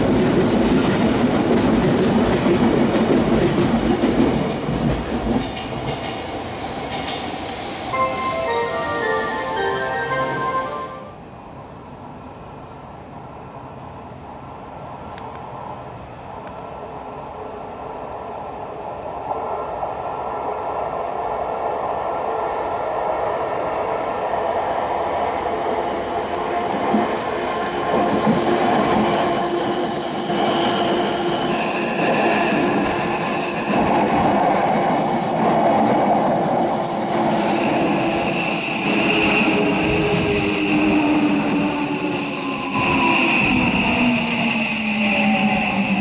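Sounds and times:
electric train passing: 0.0 - 12.6, 22.2 - 46.0.

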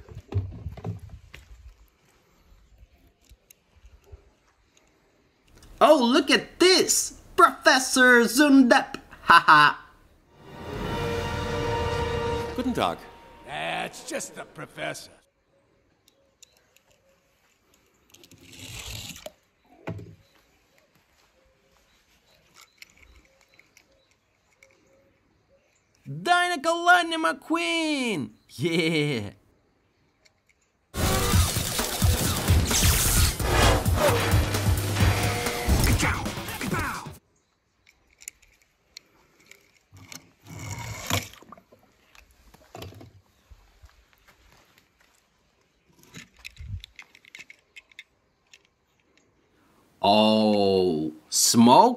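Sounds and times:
faint scattered clicks: 3.0 - 5.8, 15.9 - 18.4, 22.3 - 26.1, 37.7 - 40.2, 44.6 - 49.4
toy car clicks and scrapes: 17.7 - 19.4, 22.5 - 24.9, 37.8 - 41.3, 46.0 - 49.2.

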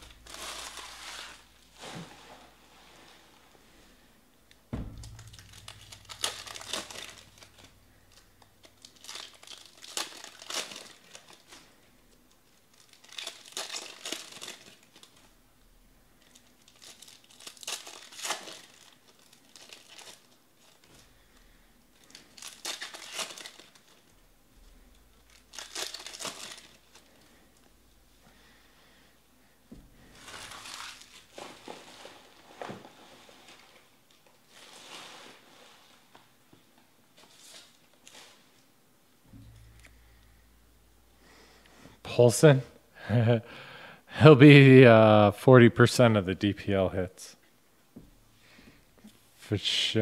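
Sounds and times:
wrappers crinkling torn open: 0.0 - 1.7, 5.1 - 15.4, 16.2 - 21.0, 22.0 - 24.2, 24.9 - 27.4, 30.1 - 32.6
soft thump on table: 4.7 - 5.2.

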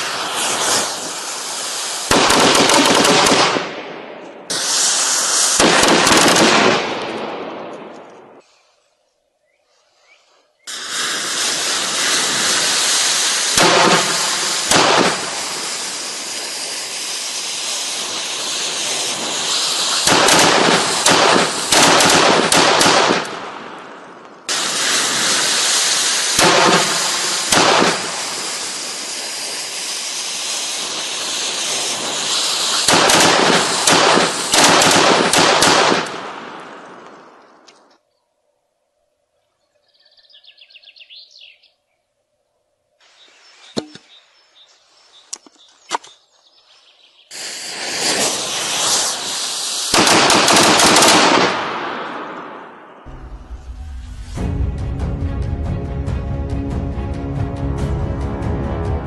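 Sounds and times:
fireworks spraying hiss: 0.0 - 3.6, 4.4 - 6.5, 10.7 - 37.8, 43.0 - 54.5
rapid crackling pops: 2.1 - 3.8, 4.5 - 8.3, 10.7 - 15.7, 18.9 - 28.6, 31.7 - 37.9, 47.8 - 52.6.

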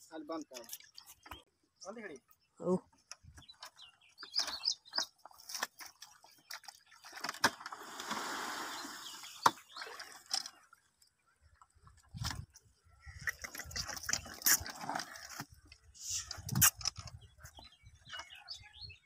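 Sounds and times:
mud and water sloshing: 4.4 - 17.6.

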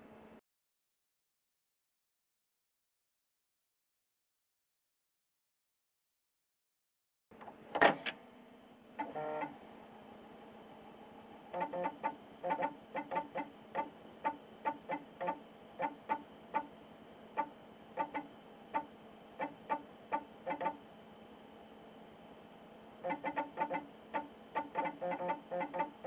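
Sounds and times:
floppy drive clicks and chirps: 9.0 - 9.6, 11.5 - 16.7, 17.3 - 20.9, 23.0 - 26.0.

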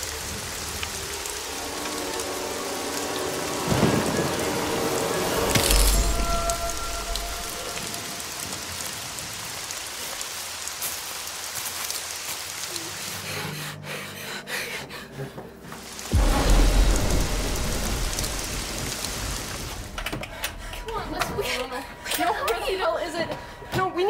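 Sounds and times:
thunder clap and rumble: 0.0 - 9.6, 16.1 - 22.1
steady rain falling: 0.0 - 24.0.

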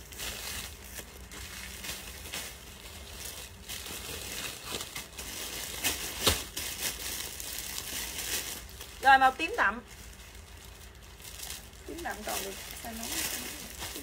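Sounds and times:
clothing fabric rustling: 10.0 - 14.0.

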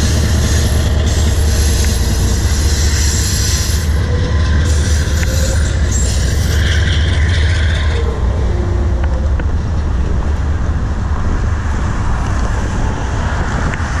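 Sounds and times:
high wheel squeal: 0.0 - 9.3
freight cars rumbling on rails: 0.0 - 14.0
wind buffeting microphone: 0.0 - 14.0.

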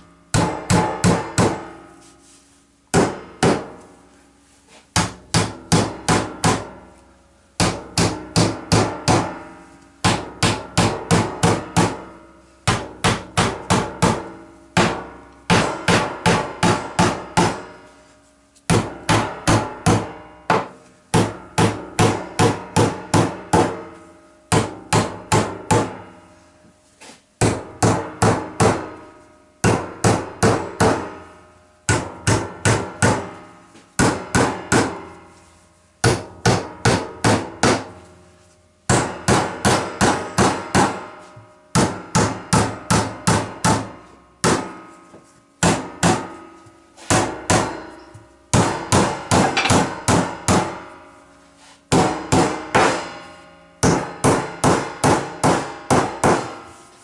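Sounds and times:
hammer driving nails into timber: 36.0 - 37.9, 48.5 - 50.7, 53.8 - 56.6.

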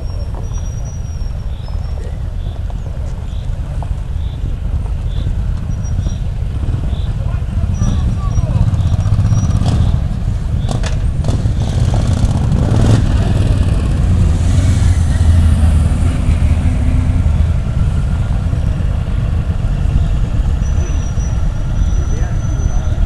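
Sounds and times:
motorcycle engines rumbling: 0.0 - 23.0.

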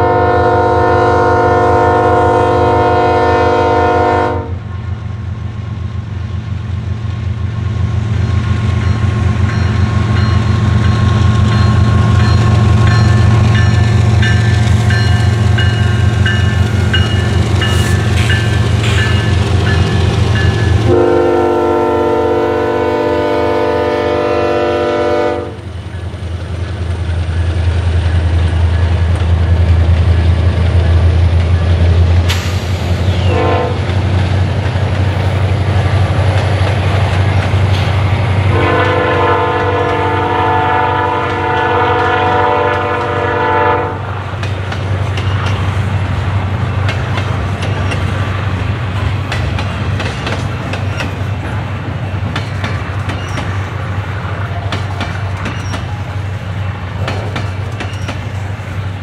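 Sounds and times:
train air horn blasts: 0.0 - 4.7, 20.4 - 25.7, 33.2 - 33.9, 38.4 - 44.1
diesel locomotive engine drone: 0.0 - 59.0
train wheel clatter: 8.1 - 22.1, 25.5 - 59.0.

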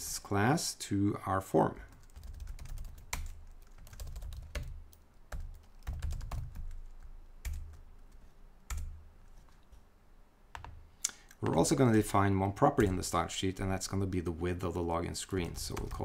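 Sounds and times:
typing on computer keyboard: 2.0 - 7.8.

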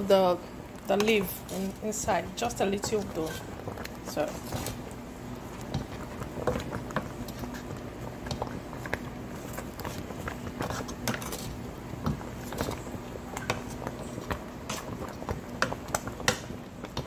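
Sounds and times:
steady low hum: 0.0 - 17.0
wooden spoon stirring pot: 0.8 - 17.0
simmering soup popping: 12.0 - 17.0.

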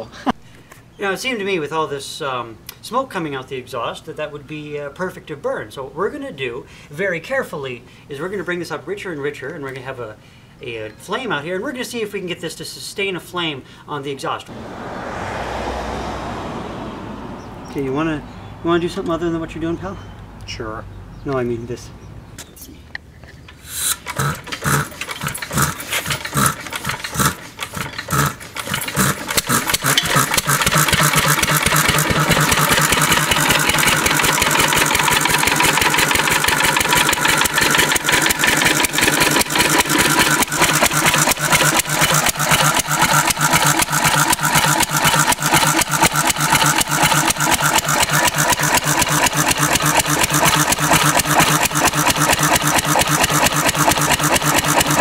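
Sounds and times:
stationary engine starting: 14.5 - 18.4, 23.8 - 55.0.

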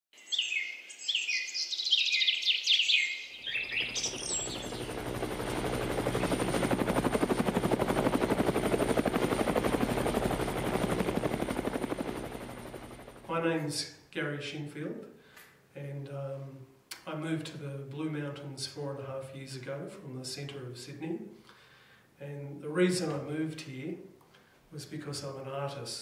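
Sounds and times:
birds whistling calls: 0.2 - 5.1
helicopter rotor blades: 3.5 - 13.4.

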